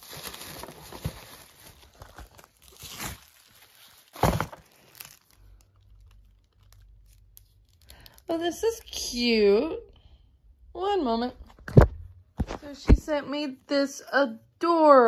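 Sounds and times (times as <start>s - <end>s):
paper and plastic rustling: 0.0s - 8.2s.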